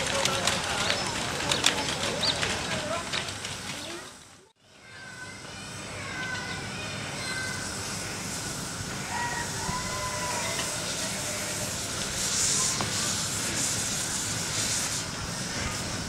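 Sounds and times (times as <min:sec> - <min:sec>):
steam locomotive hissing: 0:04.8 - 0:16.0.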